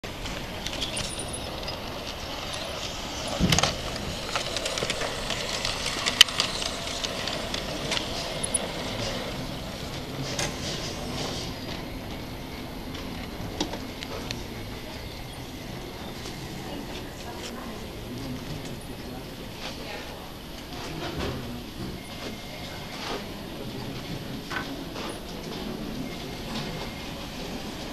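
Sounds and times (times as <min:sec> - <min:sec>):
model steam train running: 0:00.0 - 0:27.9
steady background hum: 0:00.0 - 0:27.9.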